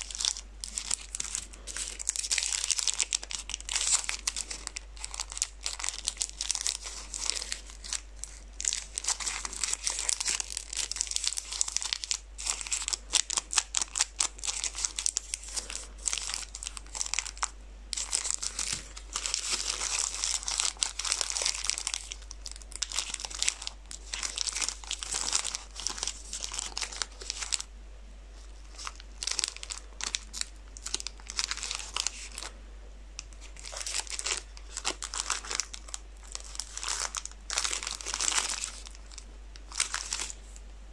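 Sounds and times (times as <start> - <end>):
plastic wrappers crinkling: 0.0 - 27.7, 28.3 - 32.6, 33.2 - 40.6.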